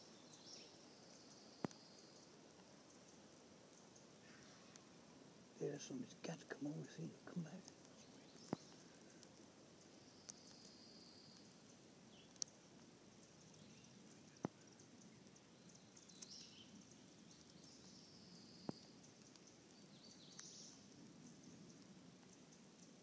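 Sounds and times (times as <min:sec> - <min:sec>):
faint high songbird calls: 0:00.0 - 0:05.0, 0:05.6 - 0:23.0
sharp clicks: 0:12.2 - 0:12.6.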